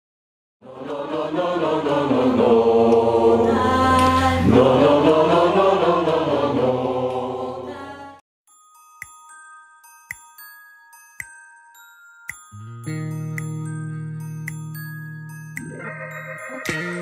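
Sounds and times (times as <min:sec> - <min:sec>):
mixed choir singing: 0:00.6 - 0:08.2.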